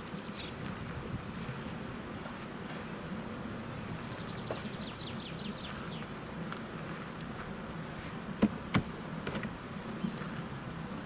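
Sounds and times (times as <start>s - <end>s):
bird chirping trill: 4.0s - 6.0s.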